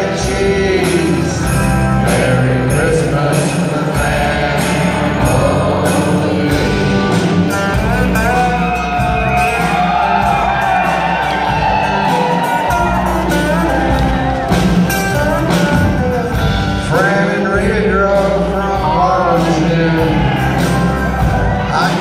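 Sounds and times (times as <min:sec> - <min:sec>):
man singing: 0:00.0 - 0:08.8, 0:15.5 - 0:22.0
country band playing live: 0:00.0 - 0:22.0.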